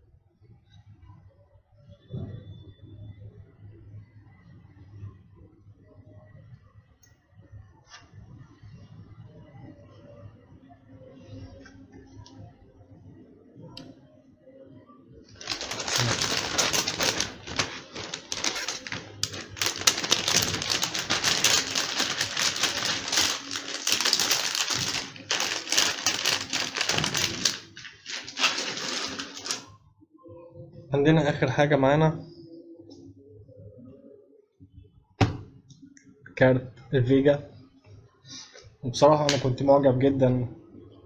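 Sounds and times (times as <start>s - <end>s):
packaging rustling: 15.4s - 29.7s.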